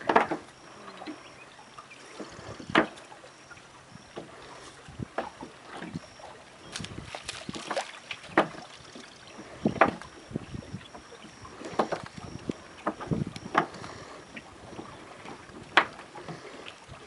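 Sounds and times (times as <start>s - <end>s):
net splashing into boat: 4.8s - 10.2s
net and floats knocking: 6.7s - 8.8s.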